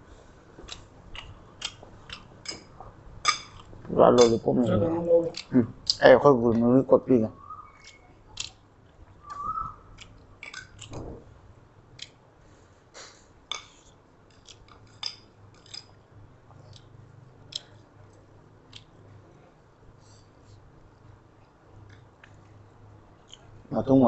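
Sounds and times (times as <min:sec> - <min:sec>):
chewing and lip smacks: 0:00.6 - 0:02.8, 0:07.8 - 0:11.0, 0:16.5 - 0:19.0, 0:21.0 - 0:22.6.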